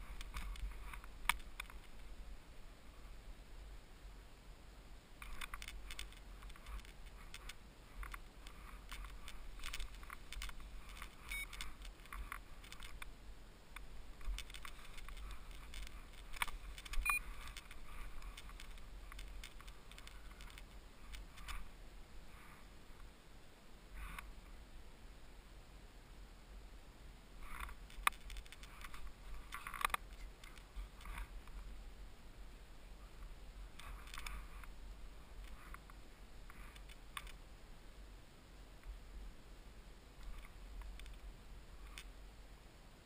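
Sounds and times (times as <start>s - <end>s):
gear rustling: 5.2s - 13.1s, 14.1s - 21.7s, 27.4s - 31.6s.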